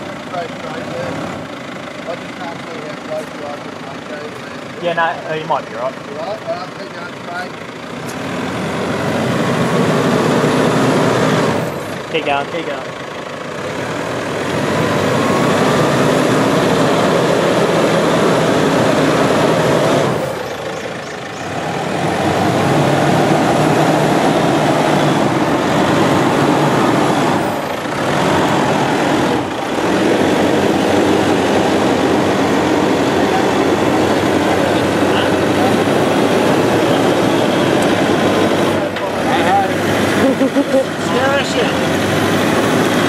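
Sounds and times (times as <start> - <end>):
truck engine revving under load: 0.0 - 43.0.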